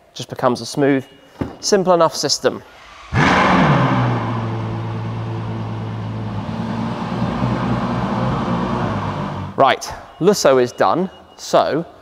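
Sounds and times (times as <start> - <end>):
car engine starting and idling: 3.1 - 9.6.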